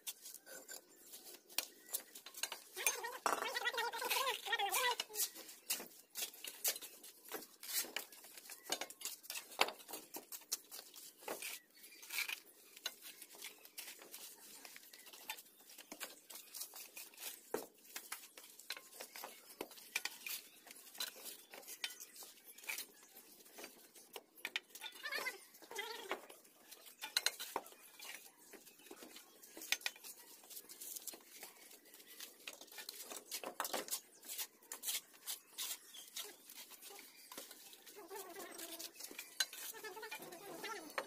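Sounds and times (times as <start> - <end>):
bricks clinking and scraping: 1.8 - 4.3.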